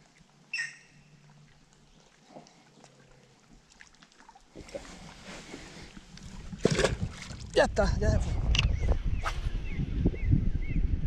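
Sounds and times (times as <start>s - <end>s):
wind rumbling: 5.5s - 11.0s
camera handling noise: 8.5s - 8.8s.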